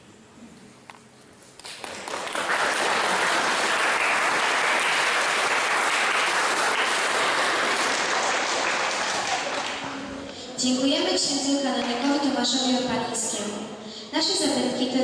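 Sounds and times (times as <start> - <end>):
audience applauding: 1.6 - 10.0.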